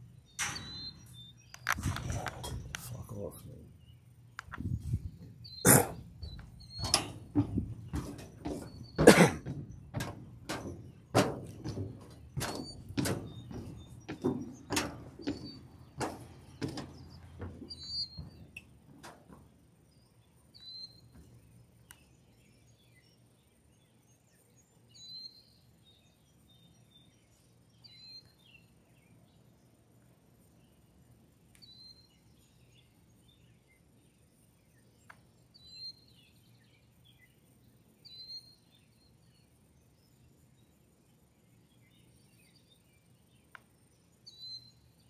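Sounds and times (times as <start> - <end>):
footsteps on metal bleachers: 0.4 - 3.3, 4.4 - 19.8, 20.6 - 21.6
faint bird chirps: 30.4 - 45.0.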